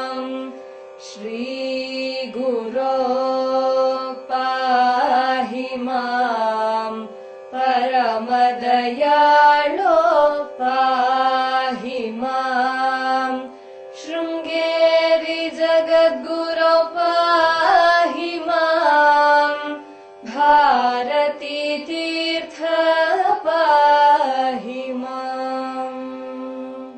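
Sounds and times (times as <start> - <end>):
slow devotional chant singing: 0.0 - 26.9.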